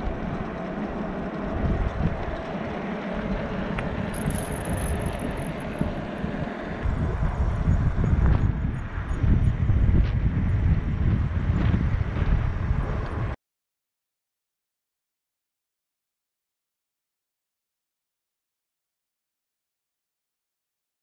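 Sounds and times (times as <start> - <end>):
fat bike tyres humming on asphalt: 0.0 - 13.4
wind buffeting microphone: 0.0 - 13.4.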